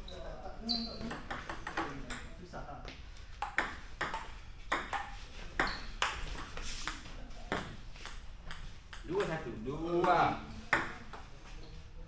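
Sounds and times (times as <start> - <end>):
table tennis ball tapping: 1.0 - 2.3, 3.4 - 9.4, 10.0 - 11.3.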